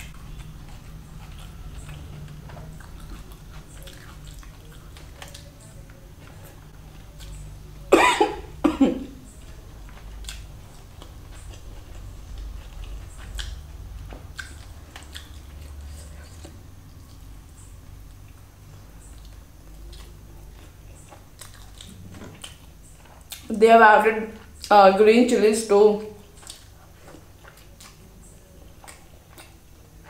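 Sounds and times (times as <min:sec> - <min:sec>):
chewing and mouth clicks: 0:00.0 - 0:07.9, 0:09.2 - 0:23.5, 0:26.2 - 0:30.0
steady low hum: 0:00.0 - 0:30.0
person coughing: 0:07.9 - 0:09.1.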